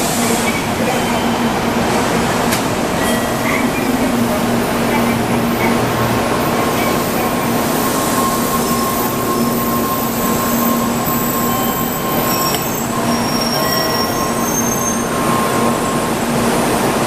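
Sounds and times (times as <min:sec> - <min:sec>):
train running rumble: 0:00.0 - 0:17.0
high-pitched brake squeals: 0:03.0 - 0:04.3, 0:06.5 - 0:16.2.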